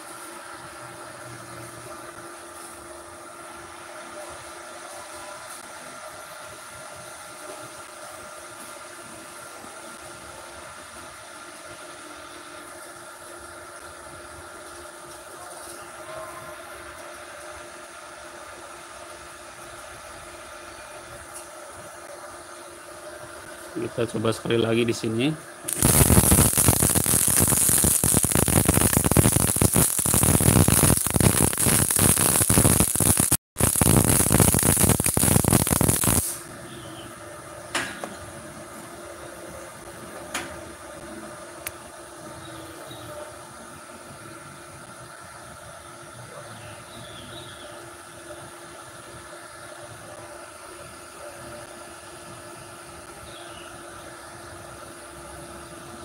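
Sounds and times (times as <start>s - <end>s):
welder cooling fan whir: 0.0s - 56.0s
welding arc crackling: 23.8s - 36.5s
sparks spattering: 25.7s - 36.4s.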